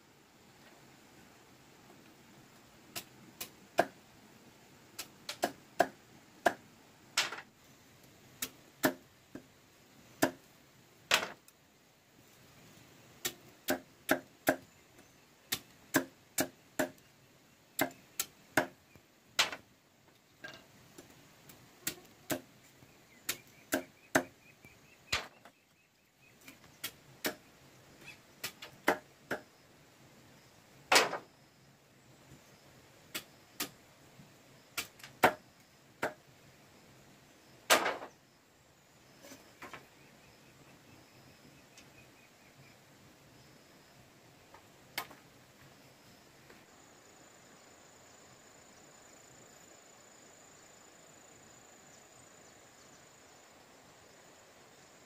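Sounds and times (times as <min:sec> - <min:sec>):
machete chopping bamboo: 0:02.9 - 0:04.0, 0:05.0 - 0:06.6, 0:08.4 - 0:09.5, 0:10.2 - 0:10.4, 0:13.2 - 0:14.7, 0:15.5 - 0:17.0, 0:17.8 - 0:18.8, 0:21.8 - 0:22.5, 0:23.2 - 0:24.3, 0:26.4 - 0:27.4, 0:28.4 - 0:29.5, 0:34.8 - 0:35.4.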